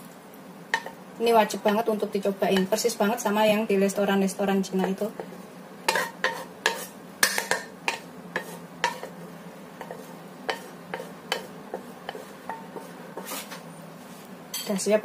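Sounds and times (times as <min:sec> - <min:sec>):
utensil scraping against a pan: 0:05.1 - 0:14.3.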